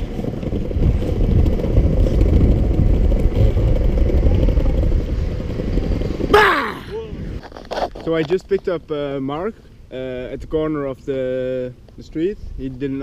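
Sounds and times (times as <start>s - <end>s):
wind buffeting microphone: 0.0s - 9.2s.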